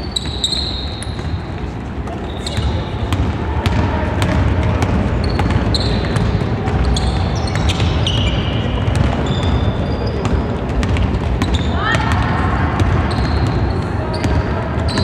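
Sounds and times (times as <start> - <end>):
sneaker squeaks on floor: 0.0 - 12.2, 12.9 - 15.0
basketball bouncing on hardwood: 2.5 - 9.6, 10.2 - 12.2.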